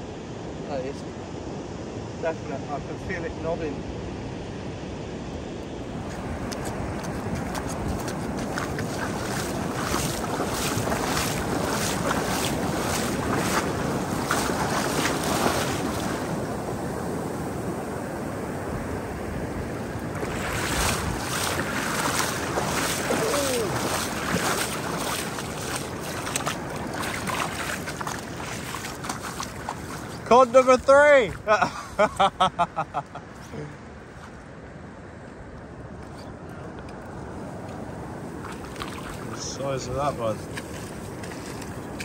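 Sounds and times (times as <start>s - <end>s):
wind buffeting microphone: 4.9s - 31.5s
surf breaking: 5.9s - 31.5s
wash running up sand: 5.9s - 33.0s, 37.7s - 42.0s.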